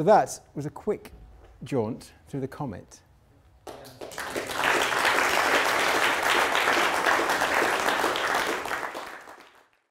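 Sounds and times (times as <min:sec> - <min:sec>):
audience applauding: 0:03.7 - 0:09.9.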